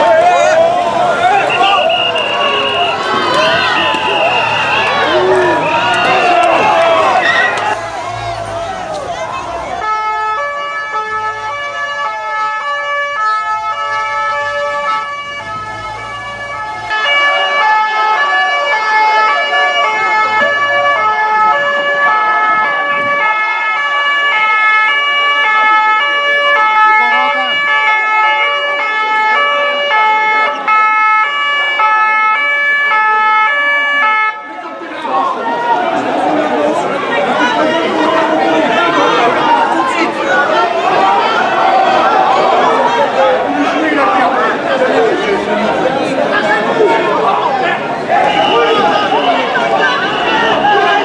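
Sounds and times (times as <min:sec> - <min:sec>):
two-tone emergency siren: 0:00.0 - 0:35.9, 0:48.1 - 0:51.0.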